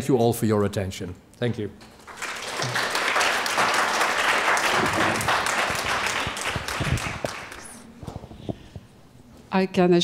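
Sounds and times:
audience applauding: 2.0 - 7.8.

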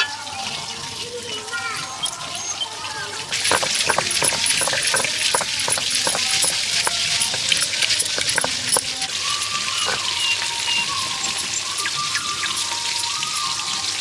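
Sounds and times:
stone pestle grinding on stone: 3.3 - 13.9.

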